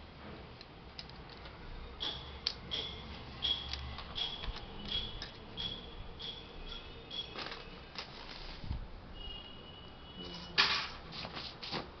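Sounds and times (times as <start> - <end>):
laptop plastic clicks and ticks: 0.6 - 5.8.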